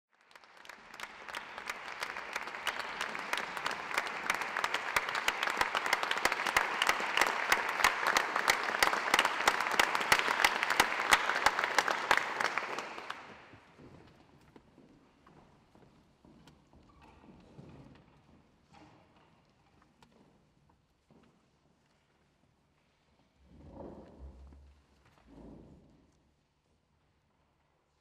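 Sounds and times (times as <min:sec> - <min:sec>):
audience applauding: 0:00.1 - 0:13.6.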